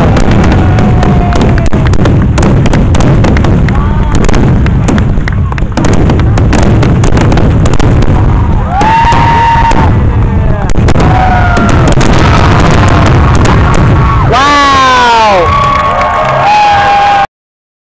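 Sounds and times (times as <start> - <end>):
spectators whooping and shouting: 0.0 - 2.0, 8.3 - 17.3
constant low rumble: 0.0 - 16.5
fireworks bursting and crackling: 0.0 - 17.2.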